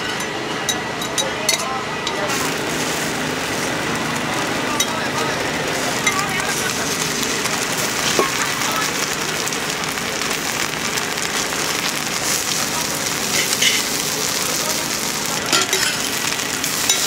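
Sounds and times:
omelette sizzling on griddle: 0:01.8 - 0:17.0.

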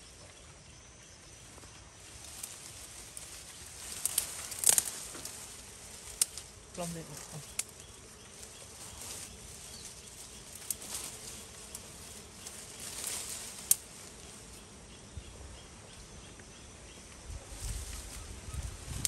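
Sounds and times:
rustling of vines and twigs: 0:01.4 - 0:14.7, 0:17.4 - 0:19.0
twigs snapping: 0:02.2 - 0:14.3.

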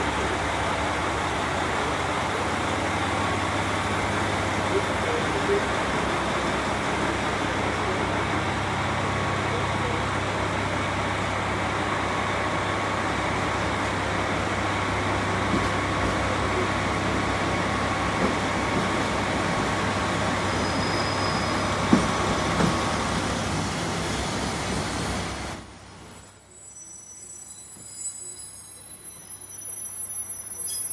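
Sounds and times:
electric train rumbling and humming: 0:00.0 - 0:30.9
faint steady tone: 0:24.9 - 0:29.8.

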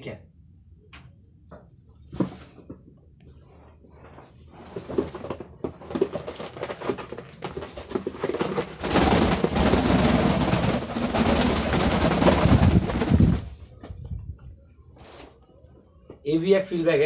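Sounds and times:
pigeons scuffling on fabric: 0:02.0 - 0:14.1, 0:14.8 - 0:16.3
pigeon wings flapping: 0:04.8 - 0:13.9.

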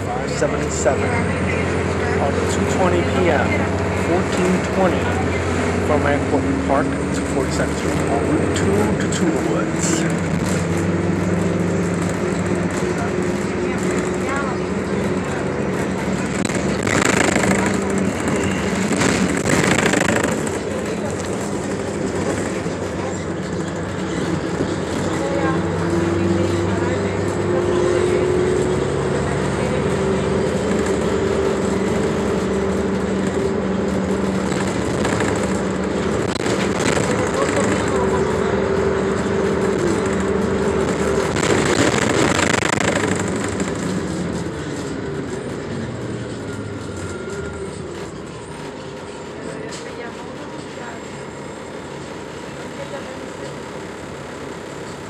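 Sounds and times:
bus engine: 0:00.0 - 0:55.0
road noise: 0:00.0 - 0:55.0
bus body rattle: 0:03.7 - 0:27.4, 0:28.4 - 0:55.0.

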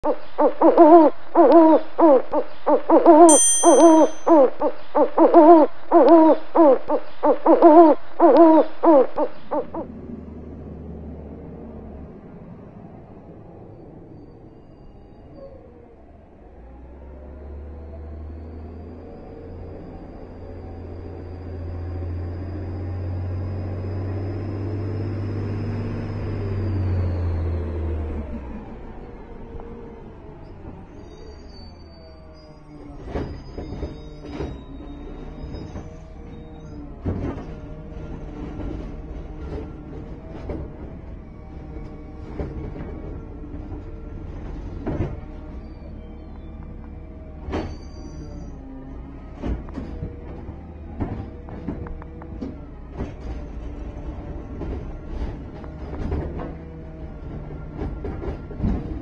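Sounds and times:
owl hooting: 0:00.0 - 0:09.9
bright high chime: 0:03.3 - 0:04.6
garbage truck engine rumbling: 0:09.8 - 0:59.0.

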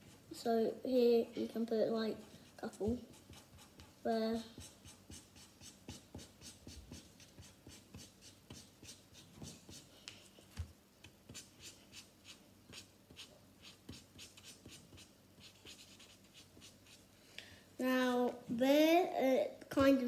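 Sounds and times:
marker scratching on paper: 0:02.1 - 0:10.4, 0:11.3 - 0:17.0.

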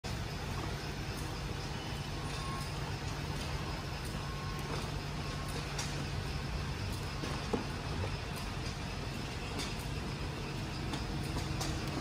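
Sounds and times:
machinery low hum: 0:00.0 - 0:12.0.

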